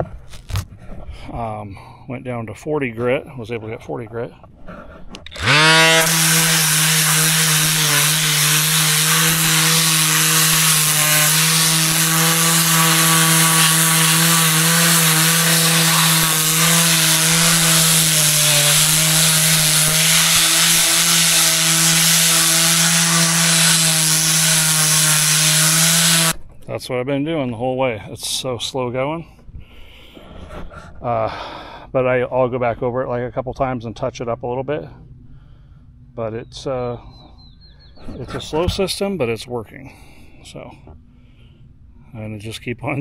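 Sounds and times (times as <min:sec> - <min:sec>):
orbit sander grinding on concrete: 0:04.8 - 0:26.4.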